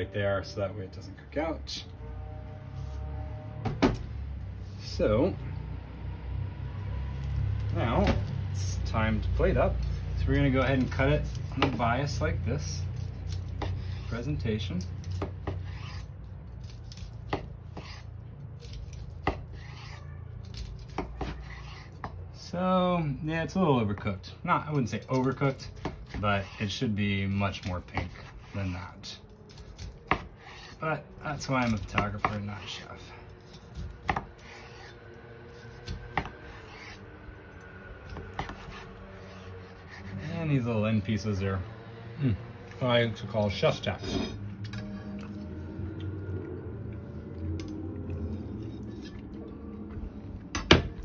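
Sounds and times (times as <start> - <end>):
low hum: 0.0 - 23.3, 29.2 - 51.0
knife slicing meat: 9.4 - 22.2, 24.9 - 37.0, 38.0 - 40.6.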